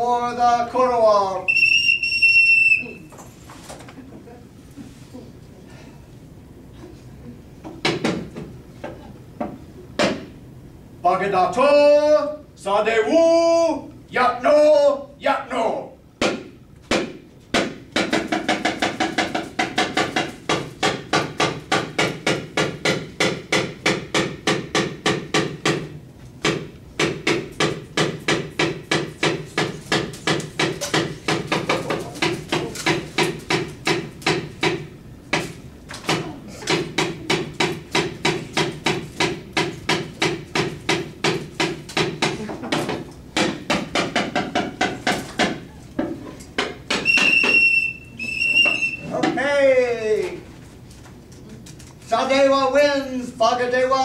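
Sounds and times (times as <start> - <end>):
wooden mallet knocking on wood: 7.6 - 8.5, 16.2 - 35.5, 36.1 - 47.6.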